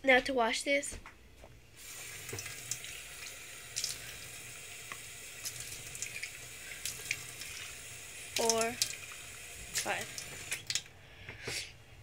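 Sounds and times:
faucet water running into sink: 1.8s - 10.9s.

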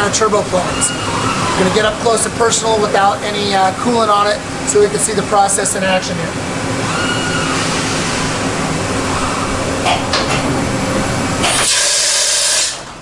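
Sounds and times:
loud hiss: 0.0s - 4.3s
machining center humming: 0.0s - 6.9s.

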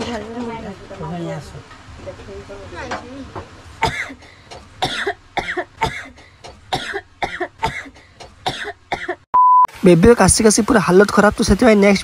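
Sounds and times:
woman coughing: 3.8s - 9.3s.

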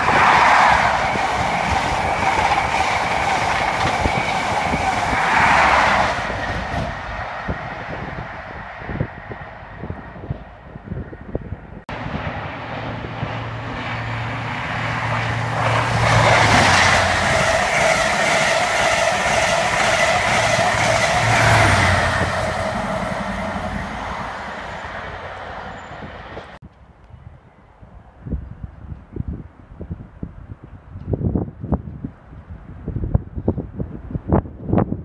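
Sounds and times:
diesel train engine drone: 0.0s - 26.6s
train wheels clattering on rails: 0.1s - 7.3s, 14.5s - 26.6s.

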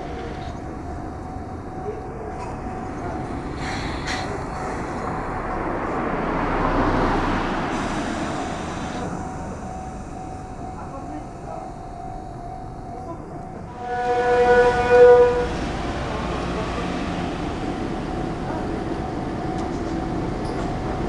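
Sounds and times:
street traffic: 0.0s - 21.0s
vehicle passing close by: 4.3s - 9.0s.

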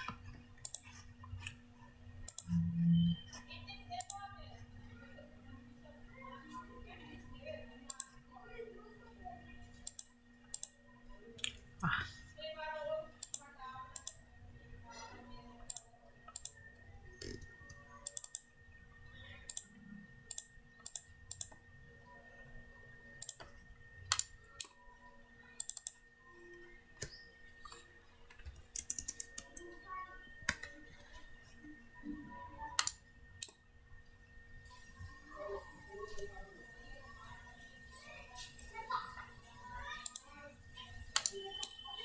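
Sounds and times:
computer mouse clicks: 0.0s - 1.6s, 2.2s - 2.7s, 4.0s - 4.2s, 7.9s - 8.2s, 9.8s - 10.8s, 11.4s - 11.6s, 13.2s - 14.2s, 15.6s - 16.6s, 17.2s - 18.5s, 19.4s - 21.6s, 23.2s - 24.8s, 25.6s - 29.7s, 30.4s - 31.2s, 32.8s - 33.6s, 40.0s - 40.3s, 41.1s - 41.8s
faint steady hum: 0.0s - 42.0s
keyboard key presses: 28.4s - 29.7s.

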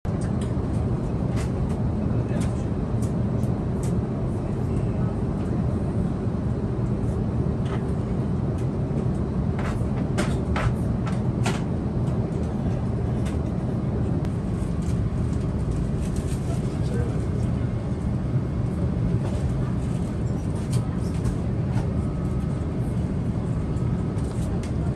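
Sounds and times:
airplane cabin engine drone: 0.1s - 24.9s.

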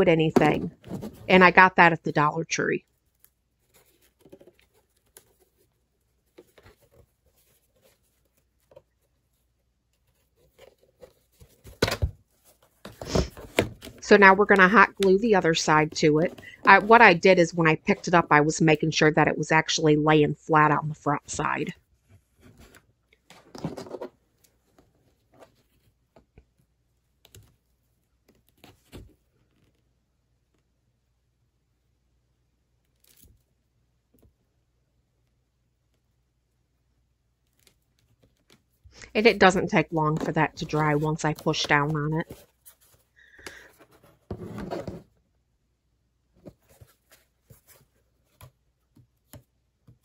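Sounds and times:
ribbon rustling: 2.9s - 17.2s, 37.4s - 44.3s.

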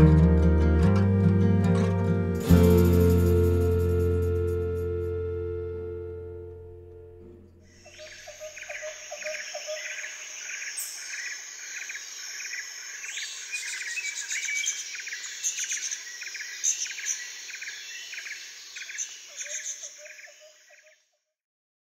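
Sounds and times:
birds chirping: 7.2s - 20.9s.

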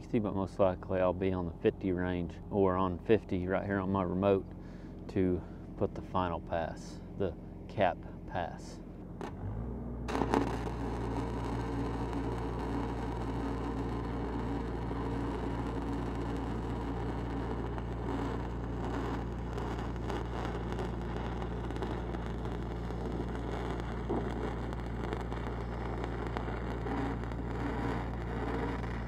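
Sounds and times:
welding machine engine hum: 2.3s - 29.0s
welding arc crackling: 10.1s - 29.0s.

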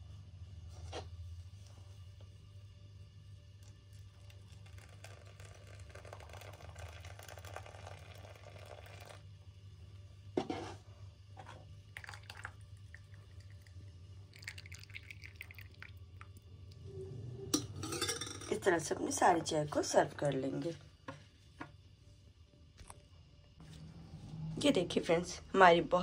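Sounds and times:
tea pouring into cups: 3.4s - 9.5s, 11.6s - 18.7s.

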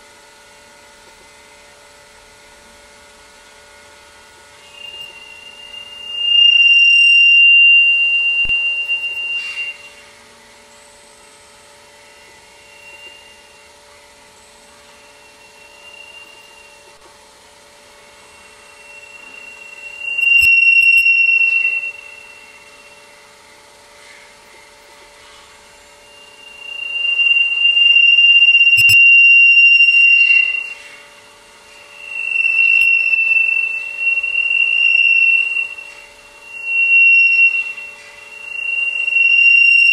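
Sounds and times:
faint steady hum: 0.0s - 39.9s
high feedback howl: 0.0s - 39.9s
sharp clicks: 28.7s - 29.0s.

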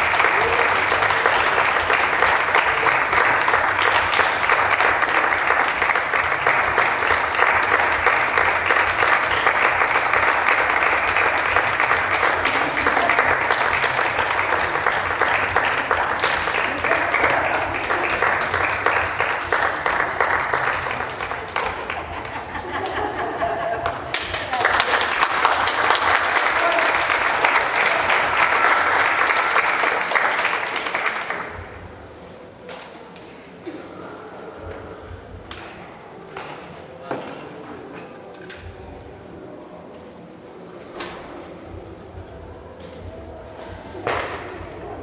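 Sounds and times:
audience applauding: 0.0s - 23.0s, 23.8s - 31.7s.

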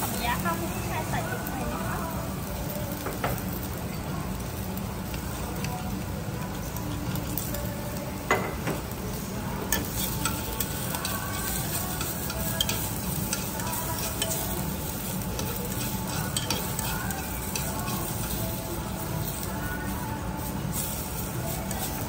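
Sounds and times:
onion and garlic sizzling: 0.0s - 22.0s
utensils clicking against pot: 9.6s - 19.9s, 20.7s - 22.0s.

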